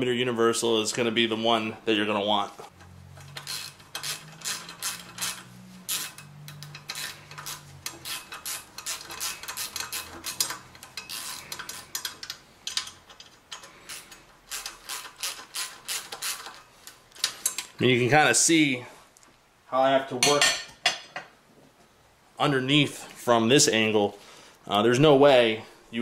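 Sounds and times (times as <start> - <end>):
ratchet clicking: 3.1 - 17.7.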